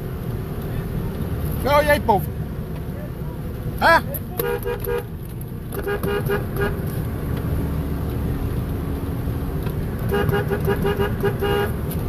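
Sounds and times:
vehicle engine and road rumble: 0.0s - 12.0s.

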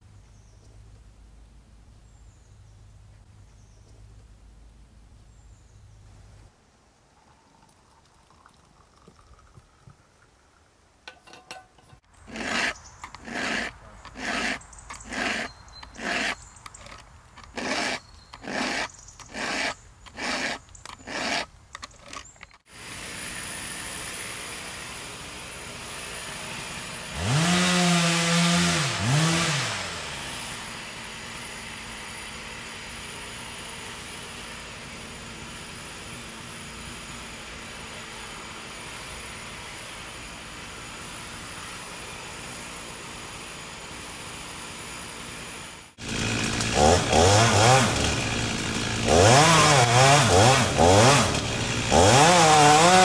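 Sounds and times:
file rasping on chainsaw chain: 11.2s - 22.4s, 41.6s - 53.0s
chainsaw engine running: 11.2s - 53.0s.

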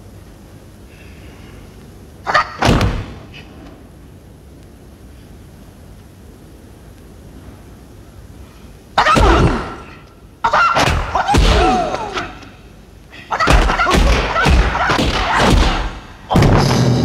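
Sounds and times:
punch and kick thuds: 2.6s - 3.2s, 13.5s - 17.0s.

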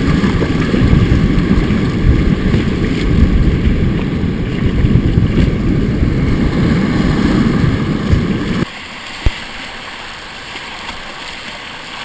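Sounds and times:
wind buffeting microphone: 0.0s - 8.7s
river rapids rushing and splashing: 0.0s - 12.0s.

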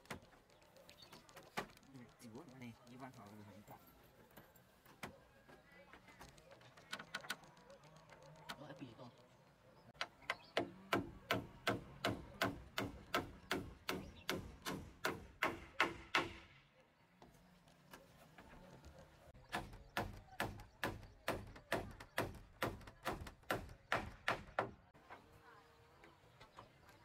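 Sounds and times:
hammer nailing wood: 10.0s - 16.6s, 19.5s - 24.8s.

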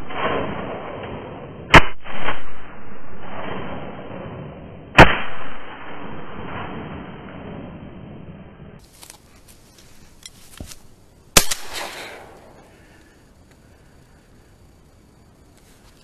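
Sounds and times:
shotgun shots with echo: 5.0s - 6.7s, 11.4s - 12.4s.

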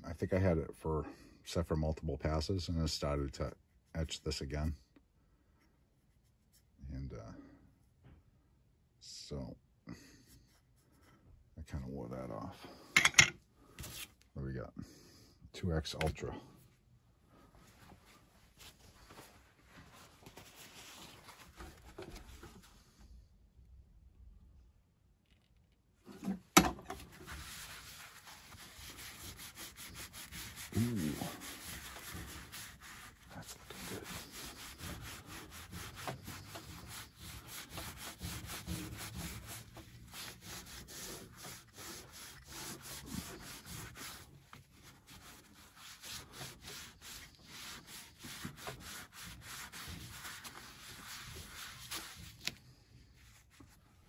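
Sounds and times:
hand rubbing on ceramic tile: 27.0s - 53.8s.

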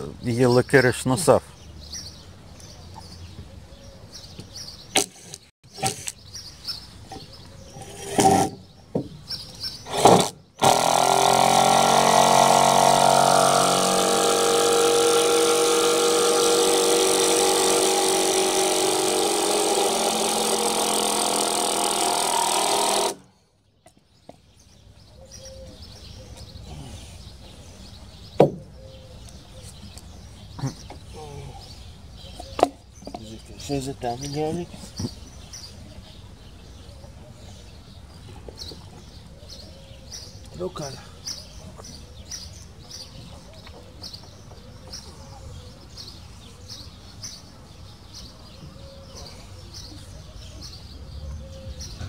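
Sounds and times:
motor humming: 9.9s - 23.3s
sharp knocks: 28.4s - 28.7s.

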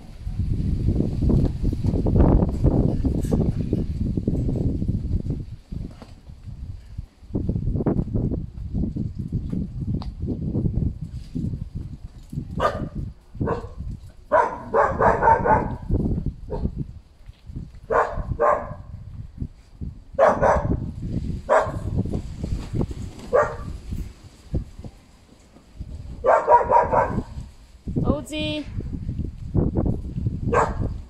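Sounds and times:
dogs barking: 12.6s - 15.9s, 17.9s - 18.9s, 20.2s - 20.8s, 21.5s - 21.9s, 23.3s - 23.7s, 26.2s - 27.4s, 30.5s - 30.9s.

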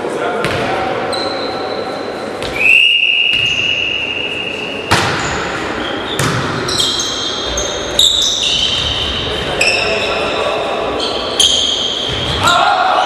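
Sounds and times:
shoe squeaks on hall floor: 1.0s - 12.4s
referee's whistle: 2.5s - 4.6s
volleyball struck hard: 4.9s - 5.2s.

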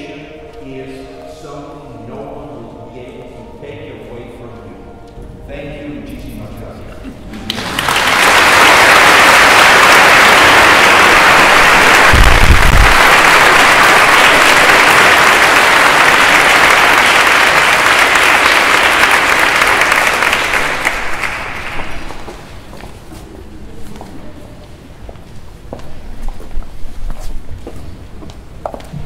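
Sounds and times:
crowd applauding: 7.3s - 22.5s.

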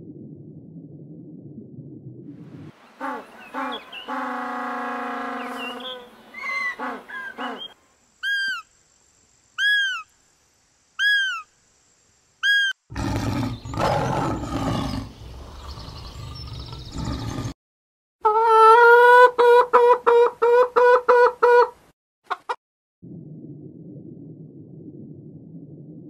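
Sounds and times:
penguins braying: 3.0s - 7.7s
lion roaring: 12.9s - 17.6s.

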